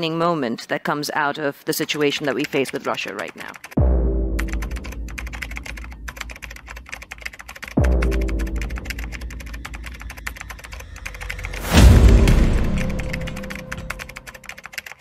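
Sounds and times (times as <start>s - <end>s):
keyboard typing clicks: 1.8s - 3.8s, 4.4s - 15.0s
deep bass music: 3.8s - 14.3s
heavy low boom: 11.5s - 14.0s.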